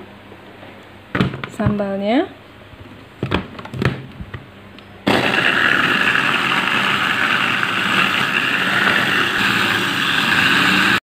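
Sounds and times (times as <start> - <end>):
electric food chopper whirring: 5.1 - 11.0.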